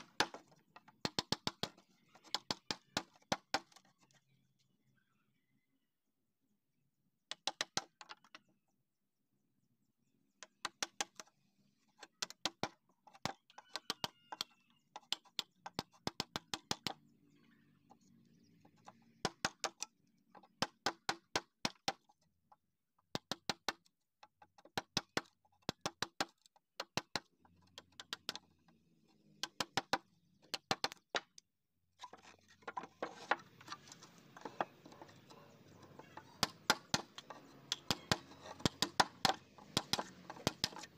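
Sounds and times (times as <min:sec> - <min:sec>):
chisel chopping into wood: 0:36.4 - 0:40.9.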